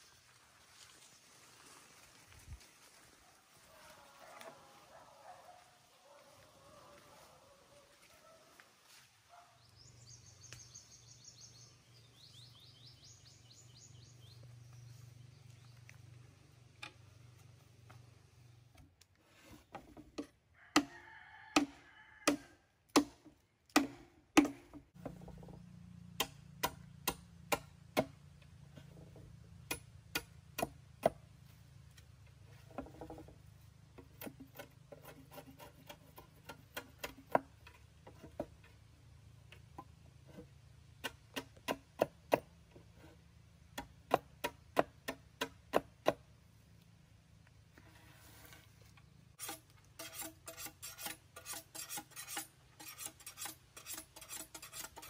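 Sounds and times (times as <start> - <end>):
machete chopping bamboo: 21.6 - 25.2, 26.2 - 28.2, 29.6 - 31.3, 41.0 - 42.6, 43.7 - 46.3.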